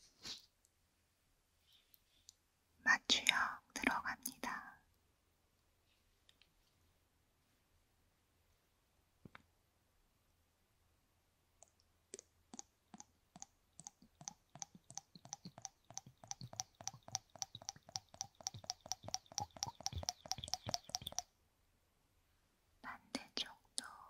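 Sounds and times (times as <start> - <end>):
syringe making wet clicks: 11.6 - 21.3.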